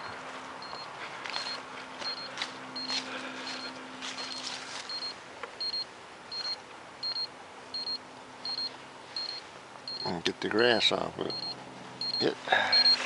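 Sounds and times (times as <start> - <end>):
footsteps through grass: 0.0 - 5.3
short high electronic beeps: 4.3 - 10.1.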